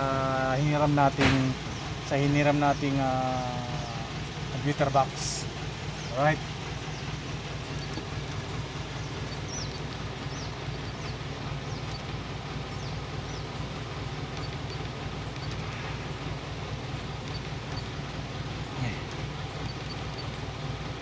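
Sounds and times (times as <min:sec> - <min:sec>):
truck engine idling: 0:00.0 - 0:21.0
bird chirps: 0:05.8 - 0:06.2, 0:06.8 - 0:16.2, 0:17.2 - 0:20.5.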